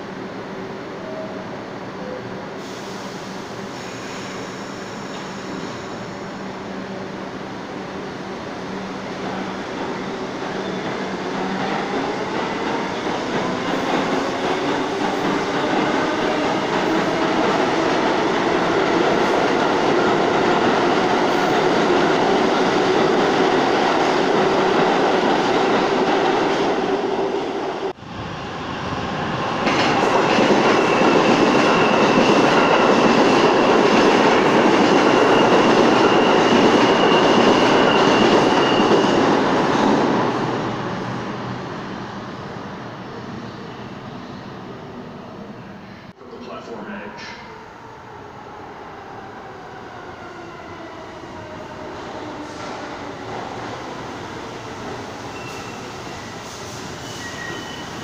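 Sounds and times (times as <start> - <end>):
train wheels rumbling on rails: 8.7 - 42.3.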